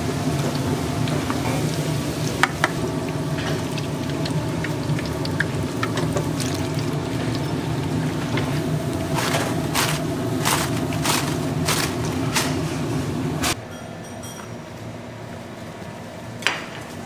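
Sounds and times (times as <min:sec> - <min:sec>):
food deep-frying in oil: 0:00.0 - 0:12.3.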